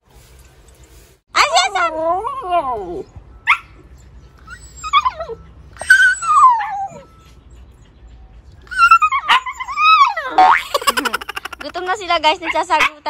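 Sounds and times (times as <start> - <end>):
puppies howling: 4.4 - 7.9, 8.6 - 10.4.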